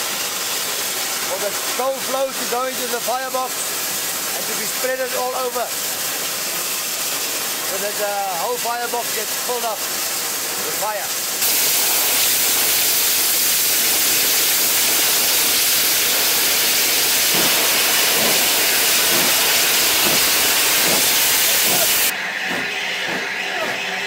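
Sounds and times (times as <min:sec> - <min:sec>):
steam jets hissing loudly: 0:00.0 - 0:24.0.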